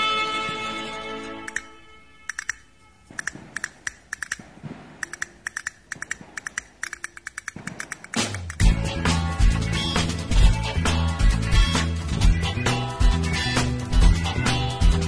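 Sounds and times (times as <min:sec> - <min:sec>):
music: 0:00.0 - 0:02.3, 0:08.3 - 0:15.0
quick irregular sharp clicks: 0:01.4 - 0:08.7.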